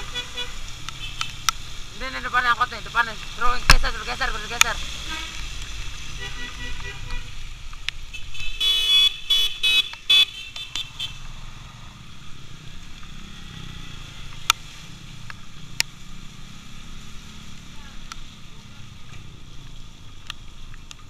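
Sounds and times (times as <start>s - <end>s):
vehicle horn blasts: 0.0s - 1.2s, 6.2s - 7.4s, 8.1s - 11.2s
motorcycle rumble: 9.3s - 21.0s.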